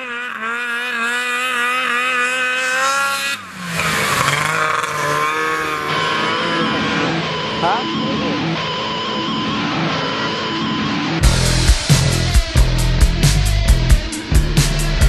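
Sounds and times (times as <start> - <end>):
snowmobile engine running: 0.0 - 15.0.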